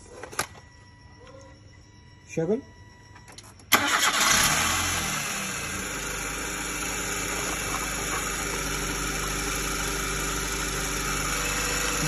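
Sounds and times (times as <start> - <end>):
car engine starting and idling: 3.1 - 12.0.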